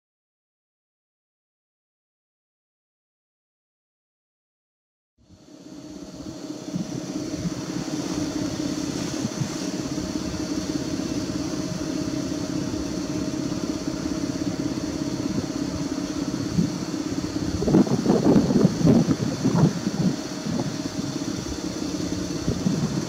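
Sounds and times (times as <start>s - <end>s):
locomotive machinery humming: 5.3s - 23.0s.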